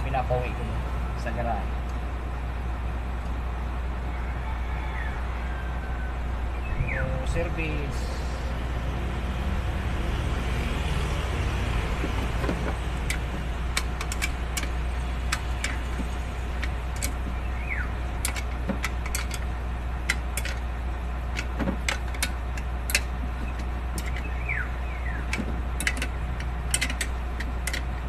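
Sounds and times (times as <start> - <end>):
vehicle engine running: 7.4 - 28.0
metallic clicks and clinks: 13.0 - 17.3, 18.1 - 20.7, 21.3 - 24.4, 25.2 - 28.0.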